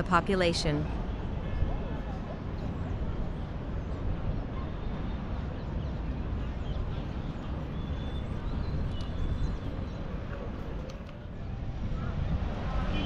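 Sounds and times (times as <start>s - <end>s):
distant traffic rumble: 0.0s - 13.0s
wind: 0.0s - 13.0s.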